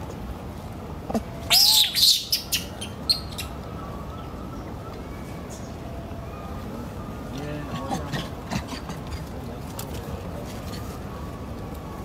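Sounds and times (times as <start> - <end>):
infant monkey squealing: 1.5 - 3.5, 7.8 - 9.3.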